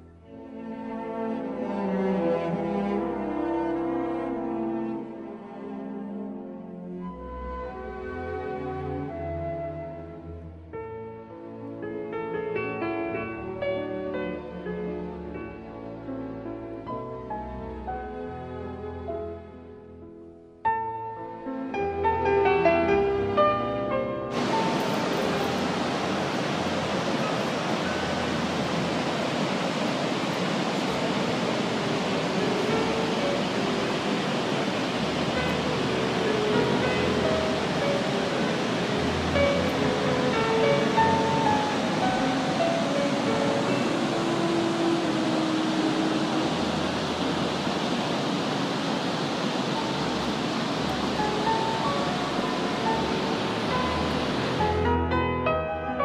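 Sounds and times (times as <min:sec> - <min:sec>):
waterfall rushing: 0:24.3 - 0:54.9.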